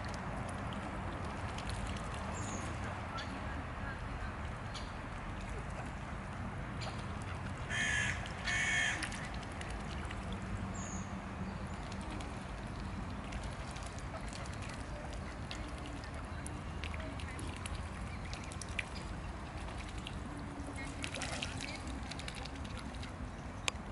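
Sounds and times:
swans splashing in water: 0.0s - 23.9s.

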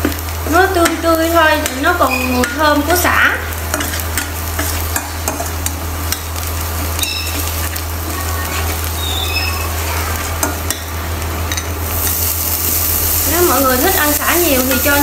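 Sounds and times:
garlic sizzling in oil: 0.0s - 15.0s
steady low hum: 0.0s - 15.0s.

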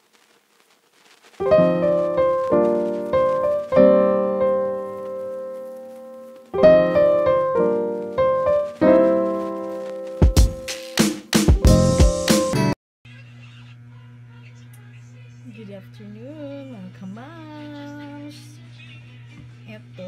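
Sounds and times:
piano chords ringing: 1.4s - 12.8s.

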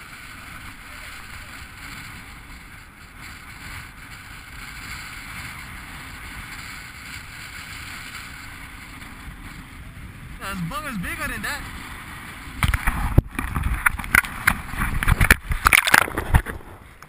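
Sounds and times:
wind noise on microphone: 0.0s - 17.0s
small waves washing over rocks: 11.7s - 16.8s.

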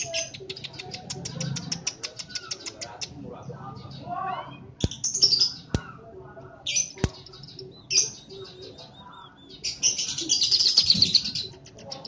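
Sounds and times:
small bird twittering: 0.0s - 3.2s, 3.8s - 6.1s.

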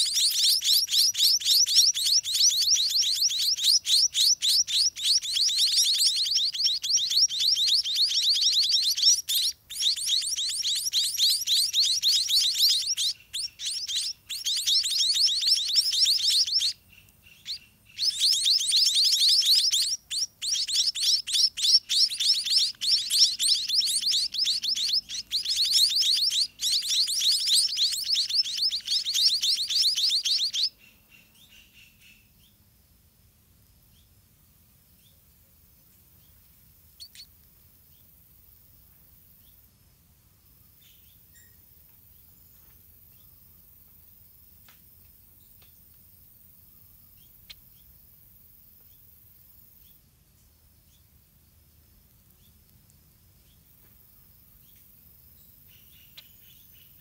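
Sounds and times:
nestlings chirping: 0.0s - 32.2s, 36.2s - 38.0s.

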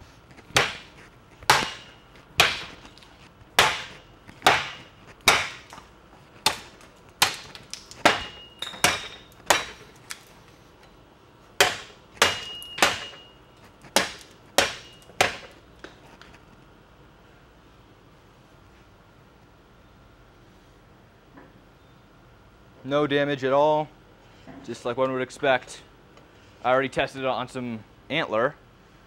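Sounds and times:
knife chopping into wood: 0.4s - 2.9s, 3.6s - 9.8s, 11.6s - 13.2s, 13.8s - 15.6s
high metallic ring: 8.3s - 9.3s, 12.3s - 13.6s.

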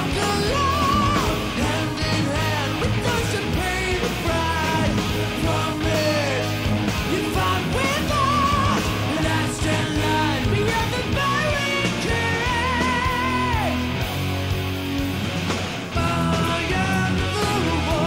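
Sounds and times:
man singing: 0.0s - 13.9s, 15.9s - 18.0s
heavy metal band playing: 0.0s - 18.0s.

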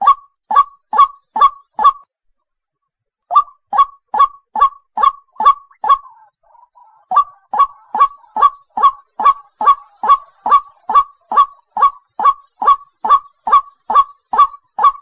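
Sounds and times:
waterhen calling: 3.3s - 15.0s.

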